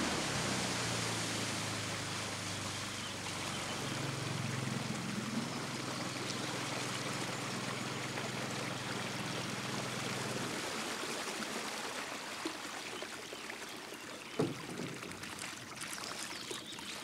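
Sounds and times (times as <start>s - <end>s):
low motor hum: 0.0s - 10.7s
rushing water-like noise: 0.0s - 17.0s.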